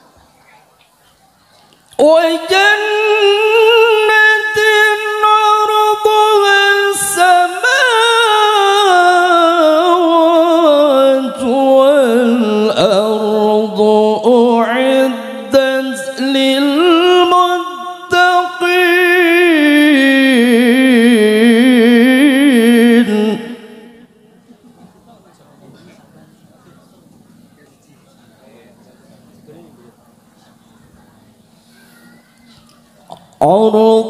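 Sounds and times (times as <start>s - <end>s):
man reciting melodically: 1.9s - 24.4s, 33.1s - 34.0s.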